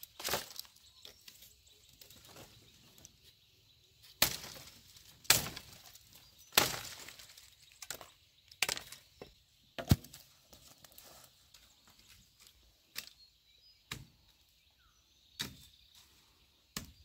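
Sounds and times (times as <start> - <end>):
billhook chopping saplings: 0.0 - 1.4, 4.0 - 11.0, 13.8 - 14.4, 15.3 - 15.9, 16.7 - 17.0
leafy branches rustling and cracking: 0.0 - 3.4, 4.0 - 9.2.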